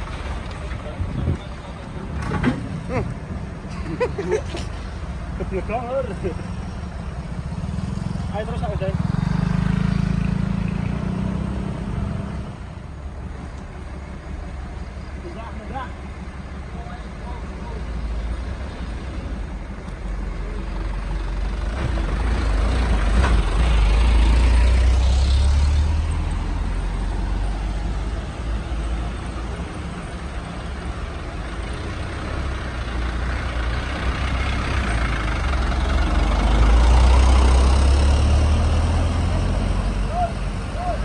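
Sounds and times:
diesel truck engines rumbling: 0.0s - 41.0s.

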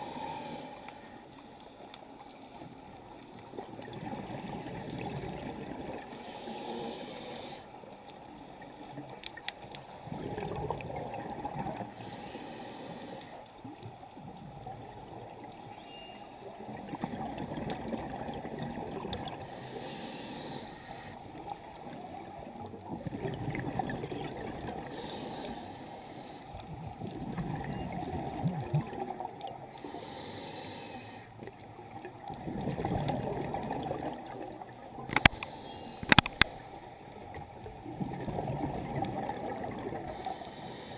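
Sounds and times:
regulator inhale hiss: 0.0s - 2.7s, 6.1s - 8.0s, 11.9s - 13.5s, 19.4s - 22.2s, 24.8s - 26.7s, 29.7s - 31.4s, 35.1s - 37.0s, 40.1s - 40.9s
gurgling exhaled bubbles: 3.5s - 6.2s, 10.0s - 11.9s, 16.6s - 19.5s, 22.8s - 25.1s, 26.8s - 29.7s, 32.2s - 35.2s, 37.4s - 40.3s.

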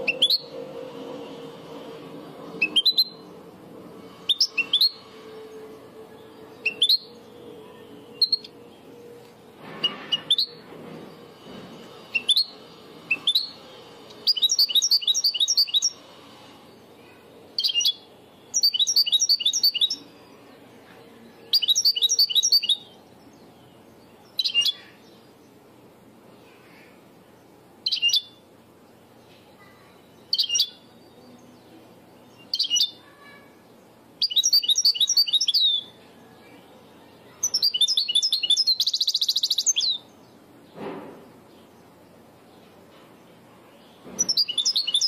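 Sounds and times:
goldfinch singing: 34.2s - 35.9s, 44.2s - 45.0s.

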